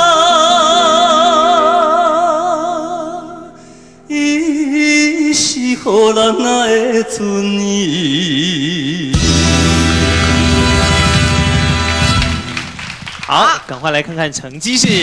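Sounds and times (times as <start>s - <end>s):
man singing with vibrato: 0.0s - 3.4s, 4.1s - 11.0s
band accompaniment: 9.1s - 13.6s.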